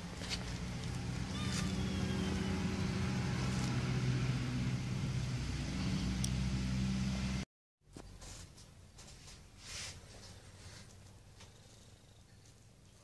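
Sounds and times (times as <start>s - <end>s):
vehicle engine running: 0.0s - 7.4s.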